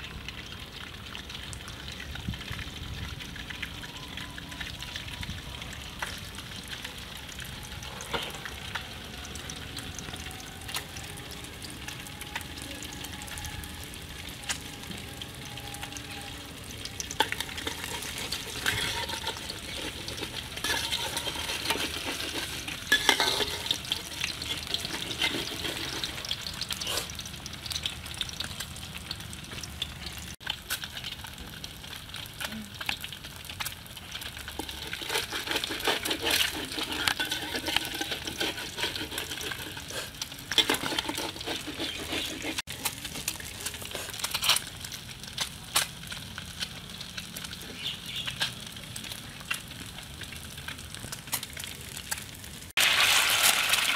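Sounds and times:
eggs sizzling in oil: 0:00.0 - 0:53.9
metal spatula scraping a pan: 0:17.0 - 0:27.2, 0:34.3 - 0:44.7.

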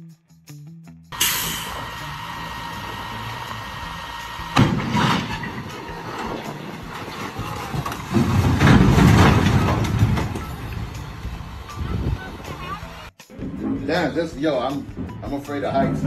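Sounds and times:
truck engine running: 0:01.1 - 0:13.1
low rumbling crunch: 0:04.6 - 0:12.2.

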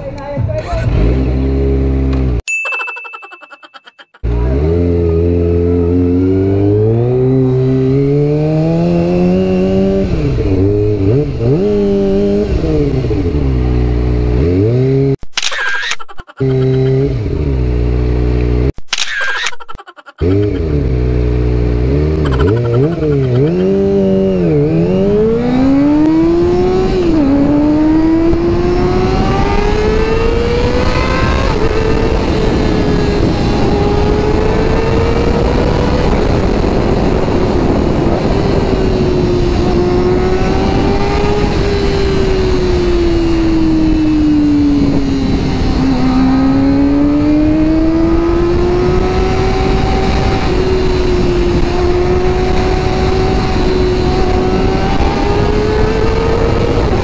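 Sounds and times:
motorcycle engine revving: 0:00.4 - 0:02.4, 0:04.2 - 0:15.2, 0:16.4 - 0:18.8, 0:20.2 - 0:57.0
wind noise: 0:22.0 - 0:57.0.

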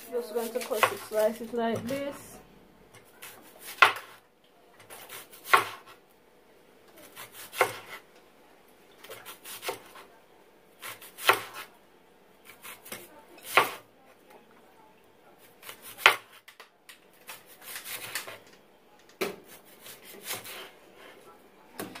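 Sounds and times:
knife crunching through onion: 0:17.2 - 0:18.4.

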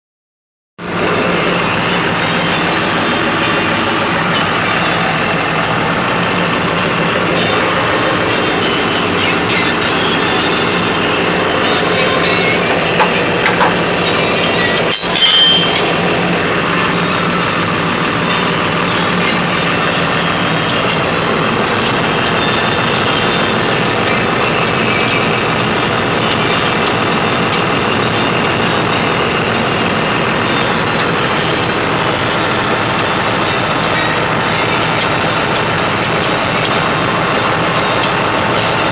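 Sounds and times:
engine idling: 0:00.8 - 0:38.9.

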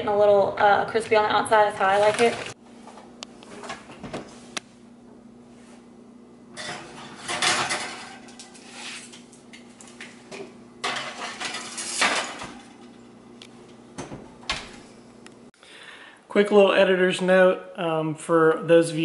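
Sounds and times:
dishes clattering on oven racks: 0:06.5 - 0:13.1.

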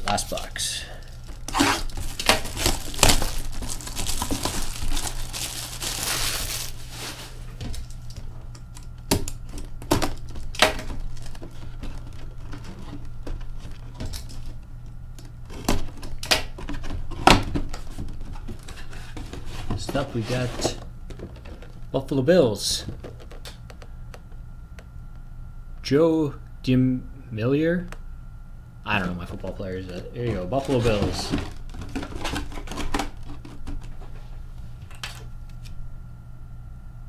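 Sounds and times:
plastic shrink-wrap crinkling: 0:01.0 - 0:08.0.

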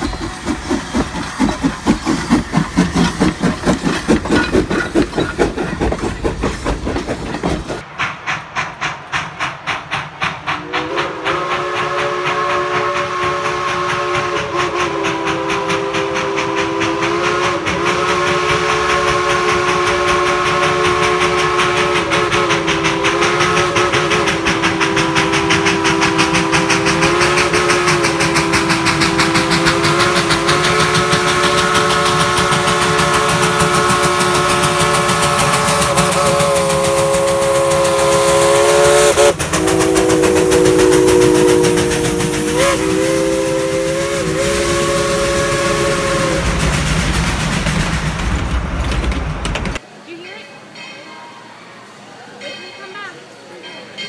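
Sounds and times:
steam exhaust chuffing: 0:00.0 - 0:49.8
steam locomotive chime whistle: 0:10.6 - 0:46.7.

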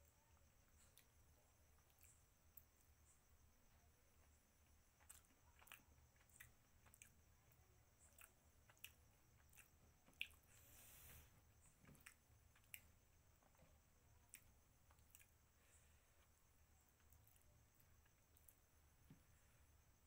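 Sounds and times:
wet chewing clicks: 0:05.0 - 0:07.2, 0:08.0 - 0:10.5, 0:11.8 - 0:13.6, 0:14.2 - 0:15.4
brief hiss: 0:10.5 - 0:11.4.

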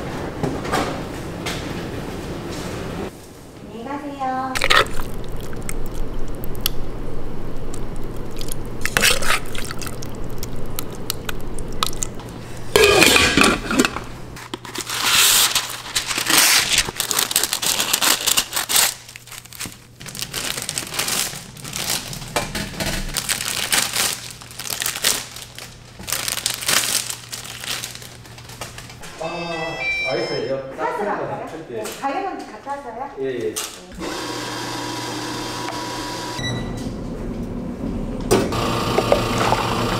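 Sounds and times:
steady low hum: 0:00.0 - 0:14.7
paper wrappers crinkling: 0:13.4 - 0:29.1.

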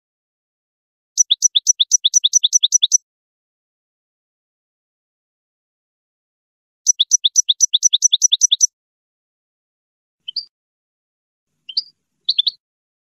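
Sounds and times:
finch twittering calls: 0:01.2 - 0:03.0, 0:06.9 - 0:08.7, 0:11.7 - 0:12.6.

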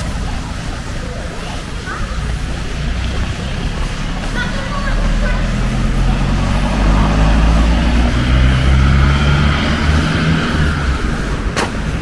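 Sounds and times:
rushing noise: 0:00.0 - 0:12.0
vehicle engine running: 0:00.0 - 0:12.0.

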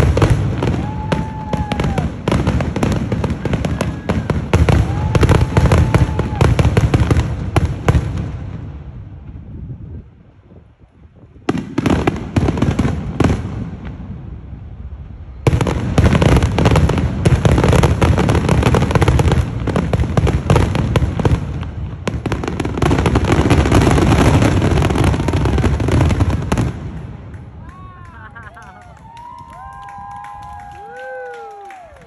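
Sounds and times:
firework crackling: 0:00.0 - 0:32.0.

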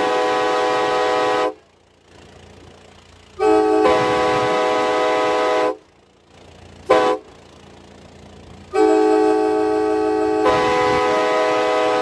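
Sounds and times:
train air horn blasts: 0:00.0 - 0:01.6, 0:03.4 - 0:05.9, 0:06.8 - 0:07.4, 0:08.7 - 0:12.0
vehicle and road noise: 0:00.0 - 0:12.0.

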